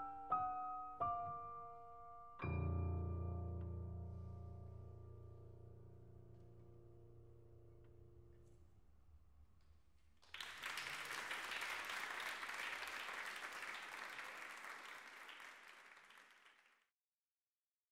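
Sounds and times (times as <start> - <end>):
piano notes: 0.0 - 8.8
audience applause: 10.2 - 16.9.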